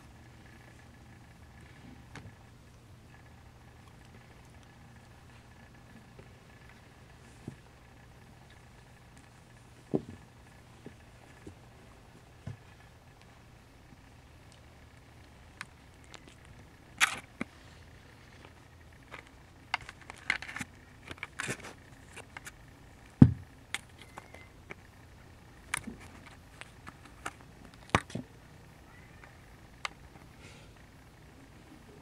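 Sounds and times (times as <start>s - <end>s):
camera handling clicks and scratches: 17.0s - 17.5s, 19.1s - 22.6s.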